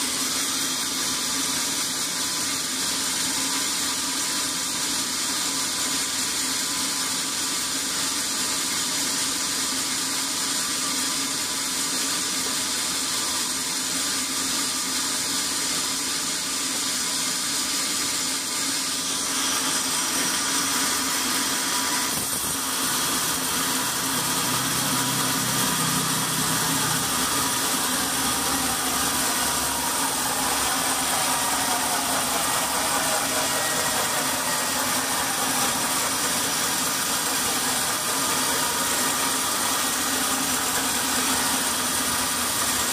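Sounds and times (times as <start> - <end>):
band saw cutting log: 13.1 - 42.9
shifting whine: 17.5 - 42.9.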